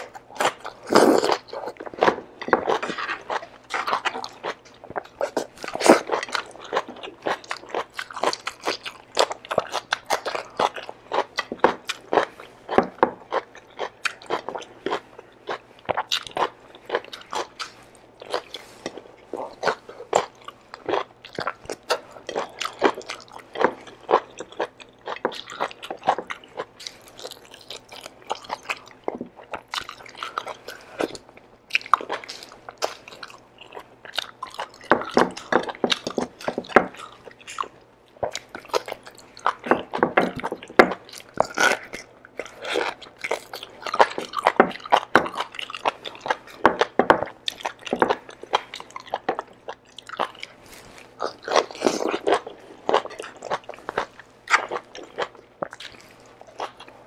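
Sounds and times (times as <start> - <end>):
person chewing and lip smacking: 0.0 - 57.0.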